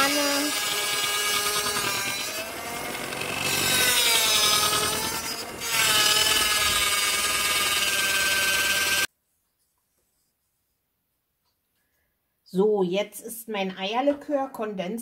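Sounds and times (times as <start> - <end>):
electric hand mixer whisking: 0.0 - 9.1.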